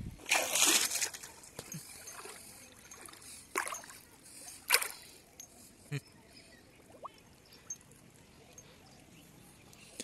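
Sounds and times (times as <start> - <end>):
water splashing from wading: 0.2 - 4.1, 4.7 - 5.0.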